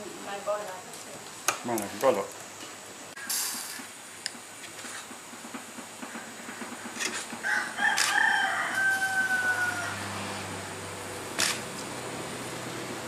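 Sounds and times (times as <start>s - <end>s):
rooster crowing: 7.4s - 10.9s.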